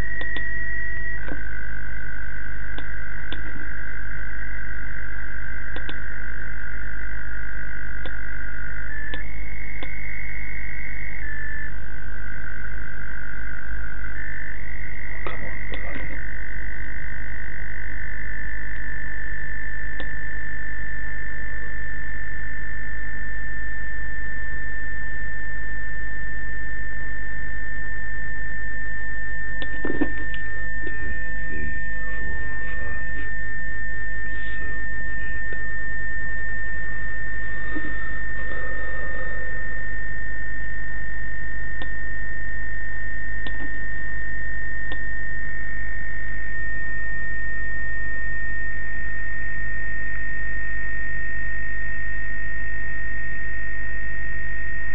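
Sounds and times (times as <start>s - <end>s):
radio hiss: 0.0s - 22.1s, 24.9s - 46.0s
low hum: 0.0s - 54.9s
steady high radio tone: 0.0s - 54.9s.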